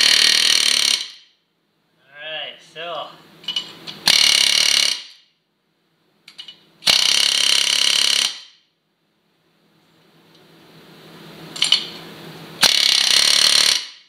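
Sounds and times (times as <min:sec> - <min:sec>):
pneumatic air hammer bursts: 0:00.0 - 0:01.4, 0:03.5 - 0:05.3, 0:06.8 - 0:08.6, 0:12.6 - 0:14.0.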